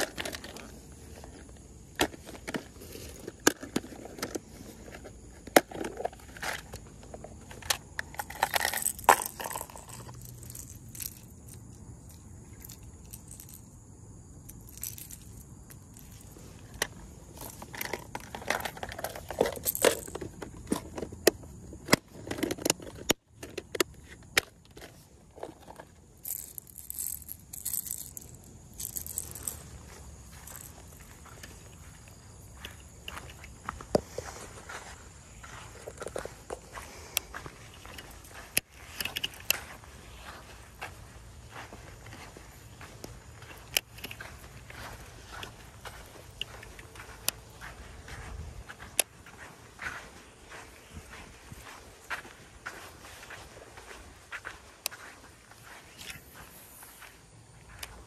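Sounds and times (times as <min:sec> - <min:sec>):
plastic and metal clicks and rattles: 0:00.0 - 0:00.7, 0:02.0 - 0:11.6, 0:16.0 - 0:29.6.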